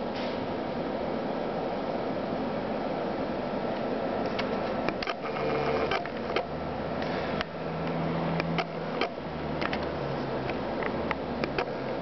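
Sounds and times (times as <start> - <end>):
sharp clicks and ticks: 4.4 - 6.5, 7.4 - 11.7.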